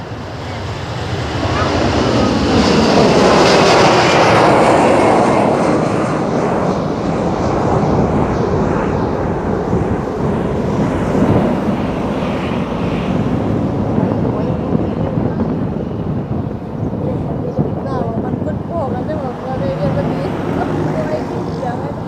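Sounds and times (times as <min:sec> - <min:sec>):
jet engines roaring at takeoff: 0:00.0 - 0:22.0.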